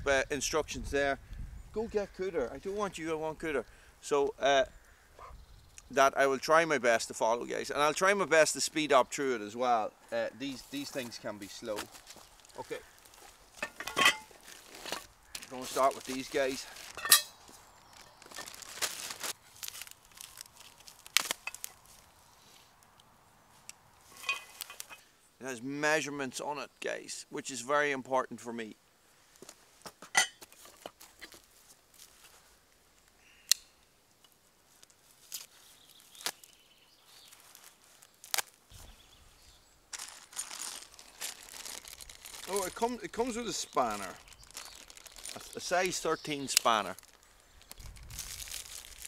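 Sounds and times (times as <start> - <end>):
plastic bag crinkling and tearing: 14.3 - 22.1, 37.2 - 38.6, 39.9 - 49.0.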